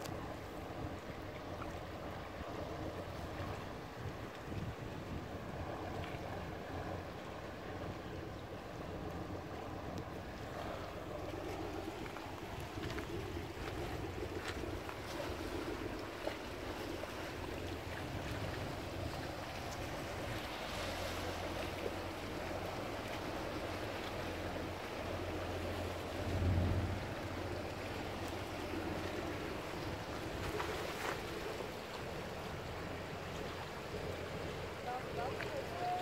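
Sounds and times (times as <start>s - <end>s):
wind on microphone: 0.0s - 7.1s, 24.4s - 31.8s
low rumble: 22.4s - 31.6s.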